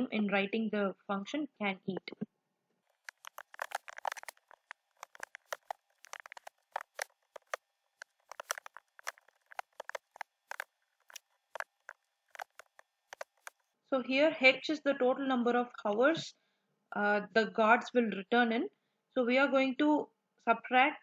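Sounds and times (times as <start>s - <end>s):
computer keyboard typing: 2.9s - 13.6s.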